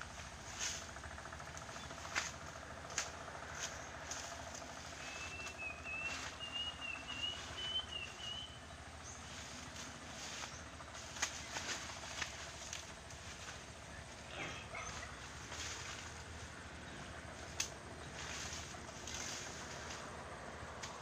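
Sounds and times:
blade chopping weeds: 1.6 - 7.7, 9.7 - 13.6
wavering bird whistle: 5.1 - 8.6.

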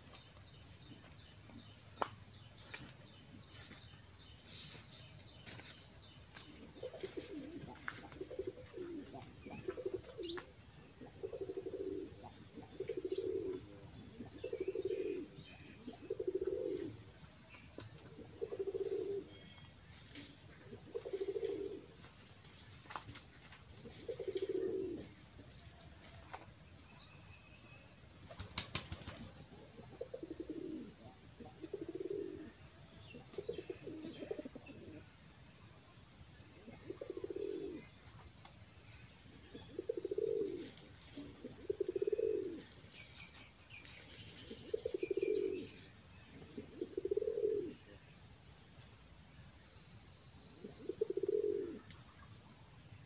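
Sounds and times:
dove cooing: 6.6 - 17.1, 18.0 - 19.4, 20.6 - 22.0, 23.8 - 25.2, 29.0 - 35.1, 36.6 - 38.0, 39.4 - 42.8, 44.4 - 48.0, 50.6 - 51.9.

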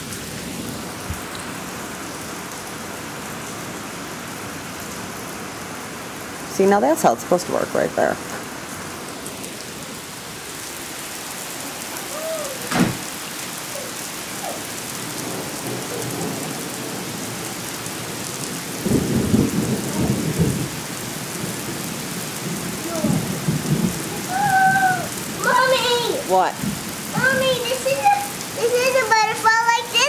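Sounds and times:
heavy rain pouring: 0.0 - 30.0
thunder rumble: 14.4 - 28.1.

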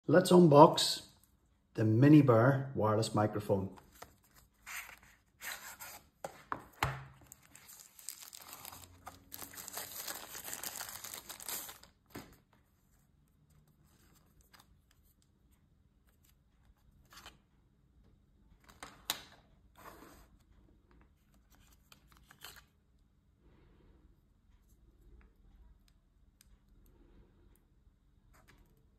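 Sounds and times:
cardboard and paper rustling: 3.7 - 12.9.

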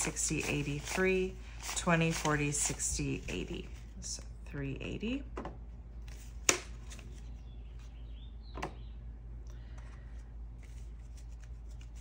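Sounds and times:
banknotes being counted: 0.0 - 3.2
steady low hum: 0.0 - 12.0.

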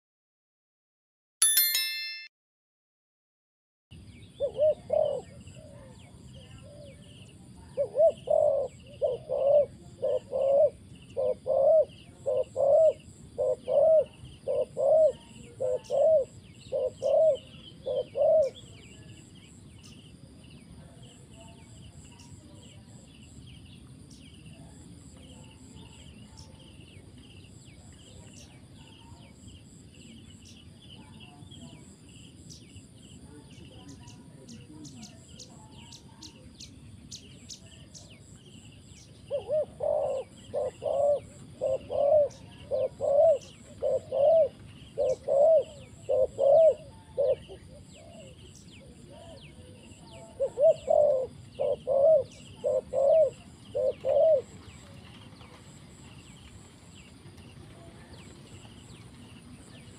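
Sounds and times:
bright chime sound effect: 1.4 - 2.3
dove cooing: 4.4 - 19.1, 39.2 - 55.5.

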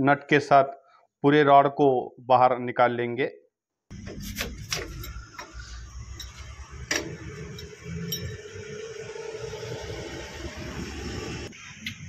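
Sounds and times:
metal clinking and scraping: 3.9 - 8.6.

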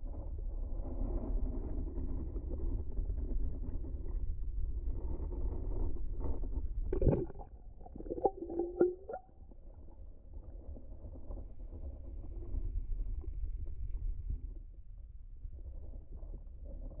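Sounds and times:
underwater rumbling: 4.1 - 17.0.

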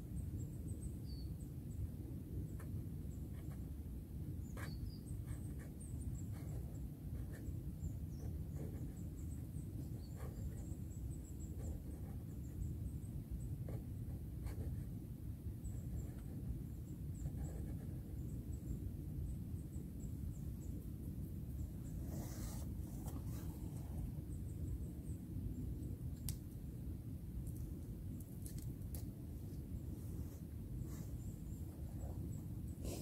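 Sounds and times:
faint bird chirps: 0.0 - 3.6, 4.3 - 26.3, 29.5 - 33.0
twigs snapping and clicking: 27.4 - 29.1.

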